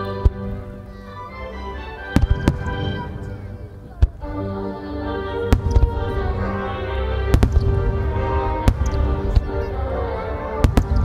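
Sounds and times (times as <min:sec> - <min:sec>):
music: 0:00.0 - 0:11.0
firework shells bursting: 0:07.3 - 0:09.5.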